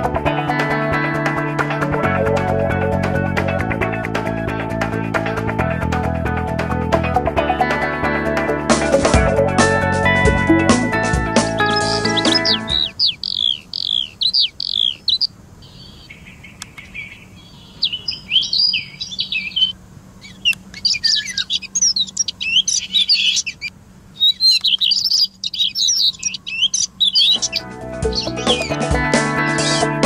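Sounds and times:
music: 0.0 - 12.9, 27.4 - 30.0
bird calls and songs: 11.4 - 30.0.

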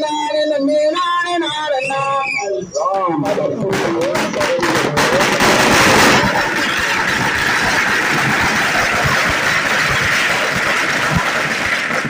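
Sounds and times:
firework fountain hissing: 3.2 - 12.0
firework pops: 3.2 - 12.0.

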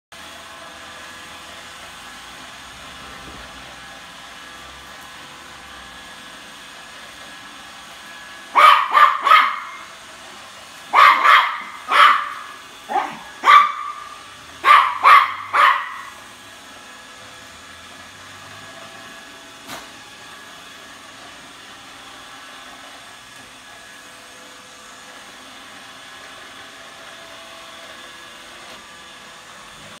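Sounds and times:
robot vacuum humming: 0.2 - 30.0
small dog barking: 8.5 - 9.9, 10.9 - 16.2.

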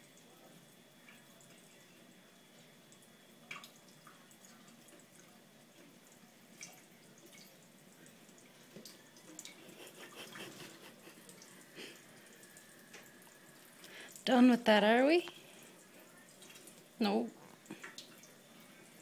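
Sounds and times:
drip-like clicks: 17.6 - 18.3.

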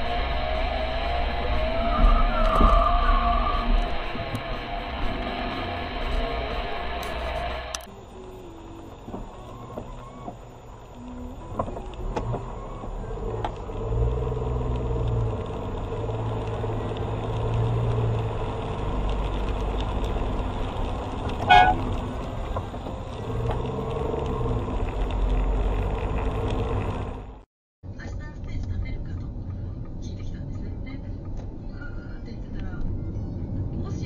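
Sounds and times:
car engine and road noise: 0.0 - 34.0
car horn honk: 21.4 - 22.0.

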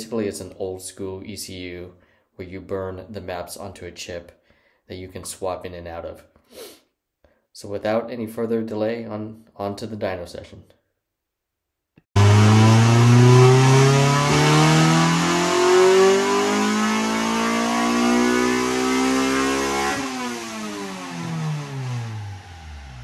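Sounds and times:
car engine revving at full throttle: 12.2 - 23.0.

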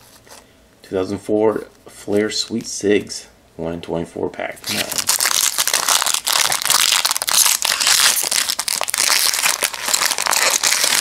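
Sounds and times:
foil wrapper crinkling and tearing: 4.6 - 11.0.

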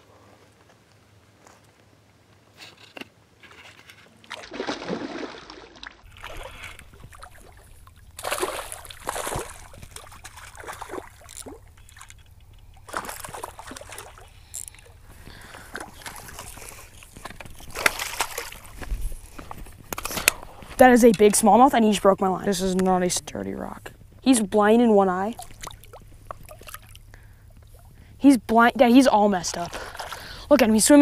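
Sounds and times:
fish splashing in water: 4.2 - 18.9, 25.3 - 28.0, 29.6 - 30.4.

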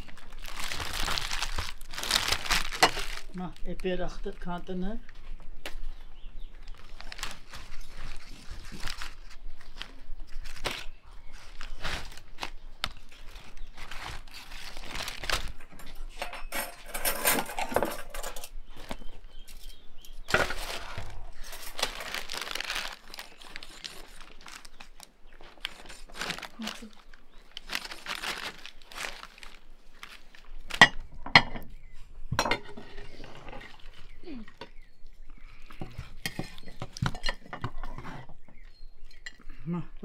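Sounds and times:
paper and foil crinkling: 0.0 - 5.2, 6.6 - 31.1, 32.8 - 34.4.

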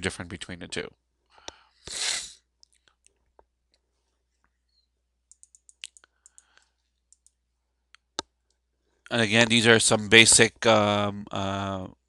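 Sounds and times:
computer mouse clicks: 5.3 - 8.6.

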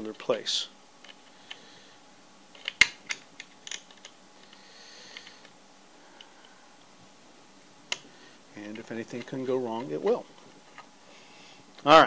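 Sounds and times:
sharp clicks of parts handled: 2.5 - 5.6.

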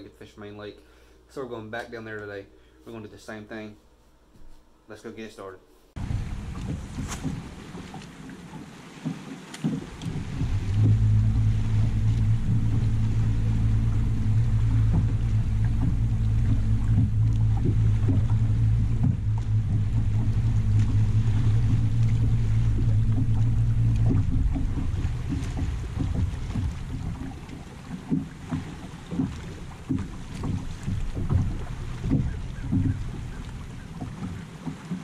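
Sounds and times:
water lapping at hull: 5.9 - 35.0
electric trolling motor humming: 9.8 - 34.9.

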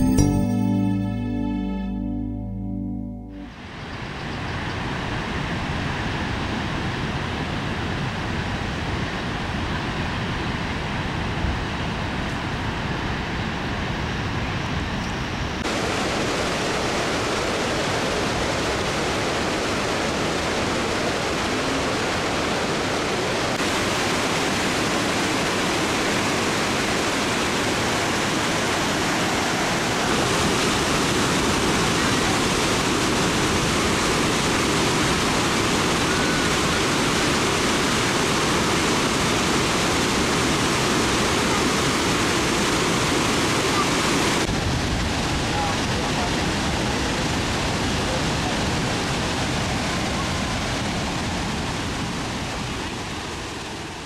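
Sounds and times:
waterfall rushing: 15.6 - 54.0.

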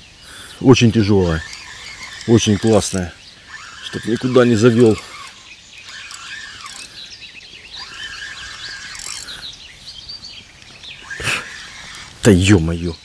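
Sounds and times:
birds singing: 0.0 - 13.0
fishing reel clicking and whirring: 0.8 - 9.5, 11.0 - 12.7.

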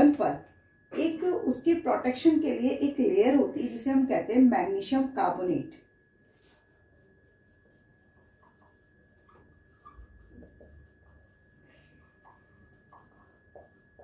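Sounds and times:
marker squeaking on whiteboard: 6.4 - 14.0.

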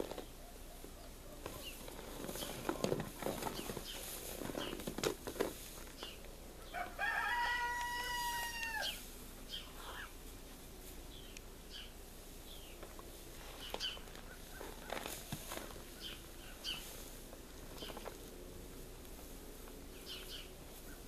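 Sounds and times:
cattle munching hay: 0.0 - 0.4, 1.4 - 6.1, 12.9 - 20.8.

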